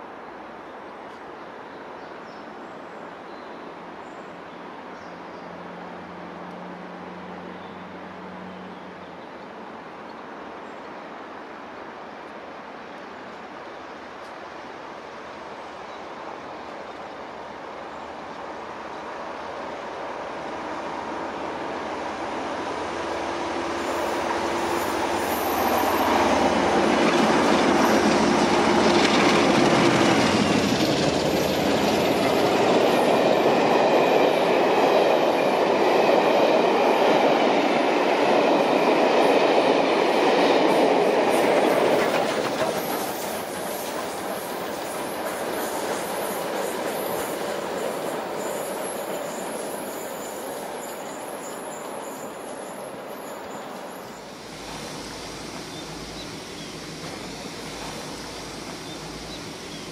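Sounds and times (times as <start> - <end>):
steam train rumble: 13.5 - 59.9
wheels clattering on rails: 23.9 - 59.9.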